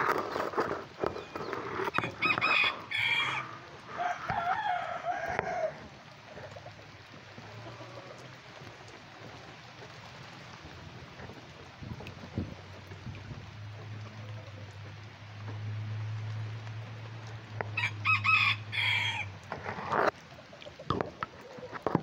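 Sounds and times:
chicken calls: 0:00.0 - 0:10.0, 0:17.6 - 0:22.0
rain hiss: 0:00.0 - 0:22.0
rooster crowing: 0:01.9 - 0:05.9, 0:17.8 - 0:19.4.

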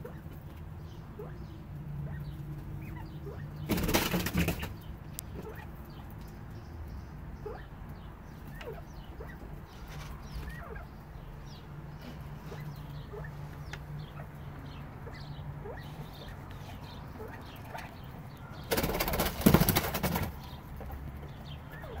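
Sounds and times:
quail chirping: 0:00.0 - 0:22.0
bird wing flapping: 0:03.7 - 0:04.8, 0:18.7 - 0:20.5.

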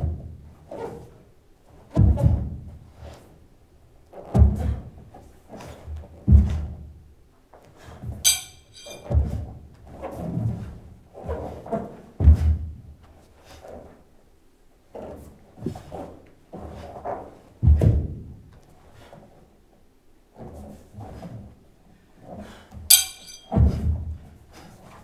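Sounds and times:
brief metallic ring: 0:08.3 - 0:09.0, 0:22.9 - 0:23.5.

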